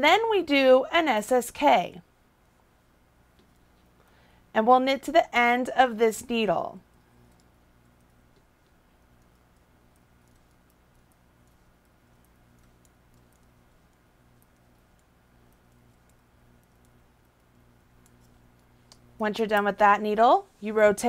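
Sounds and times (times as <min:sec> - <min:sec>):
knitting needles clicking: 0:06.9 - 0:19.8.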